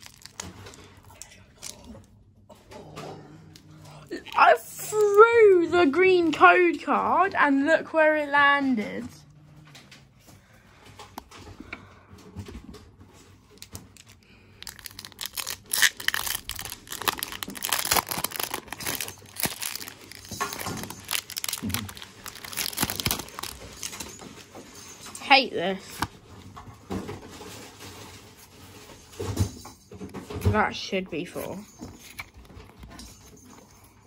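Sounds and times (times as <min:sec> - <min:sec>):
foil wrapper crinkling: 0:00.0 - 0:01.2, 0:14.0 - 0:24.4
faint handling of wrapper: 0:00.0 - 0:01.8, 0:13.7 - 0:24.4.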